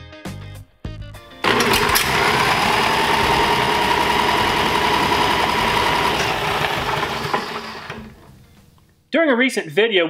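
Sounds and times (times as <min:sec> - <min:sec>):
small gasoline engine running: 0:01.4 - 0:08.6.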